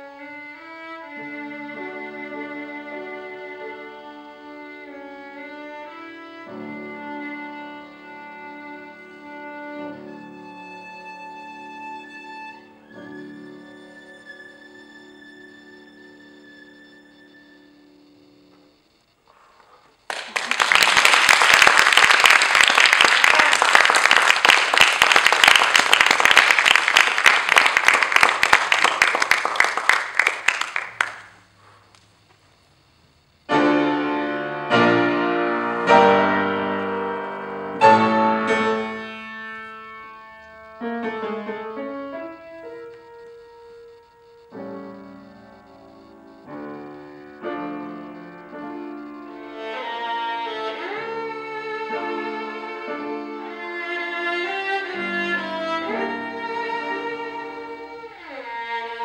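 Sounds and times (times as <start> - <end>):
violin: 0.0 - 18.8, 33.5 - 59.0
piano chords: 0.2 - 18.8, 33.5 - 59.0
audience applauding: 20.0 - 31.8.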